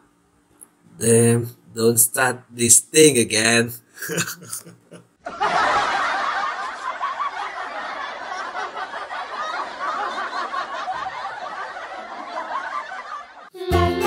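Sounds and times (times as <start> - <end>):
audience laughter: 4.0 - 13.5.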